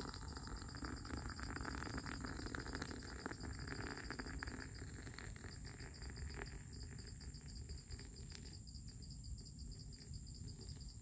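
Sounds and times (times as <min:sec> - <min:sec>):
hot water pouring: 0:00.0 - 0:06.6
insects trilling: 0:00.0 - 0:11.0.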